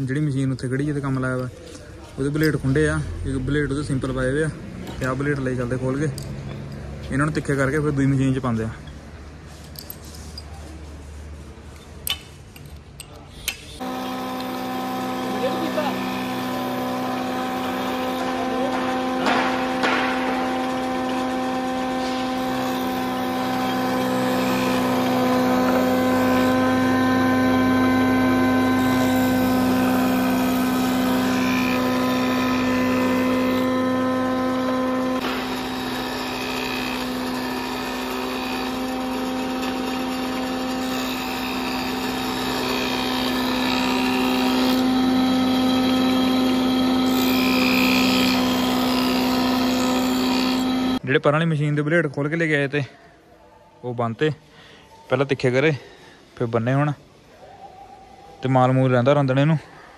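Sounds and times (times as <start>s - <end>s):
planer motor hum: 13.8s - 51.0s.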